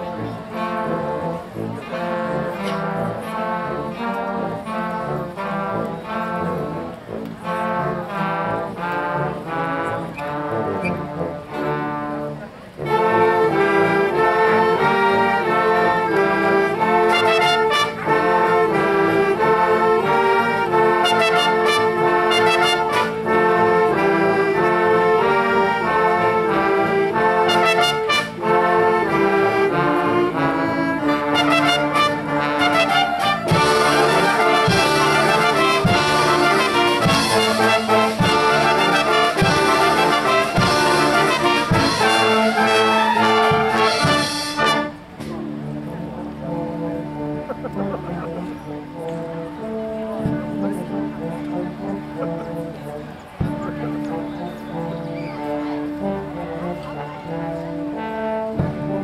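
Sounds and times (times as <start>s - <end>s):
concert band playing: 0.0s - 59.0s
drum beats: 33.2s - 45.4s.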